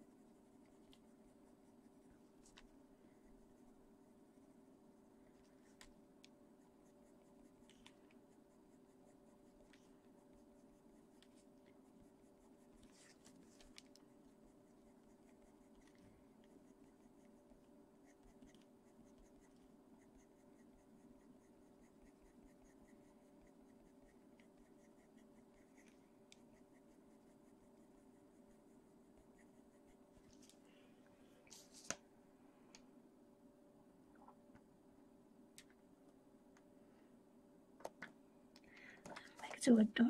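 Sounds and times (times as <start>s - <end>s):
pencil scratching on paper: 0.0s - 30.6s
steady low hum: 0.0s - 40.0s.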